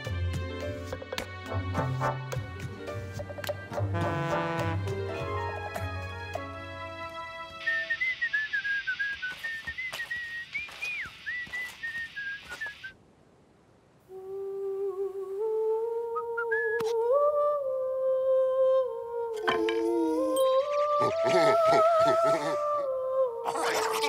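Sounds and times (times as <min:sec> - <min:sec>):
person whistling a tune: 0:07.6 - 0:12.9
person humming a melody: 0:14.1 - 0:24.0.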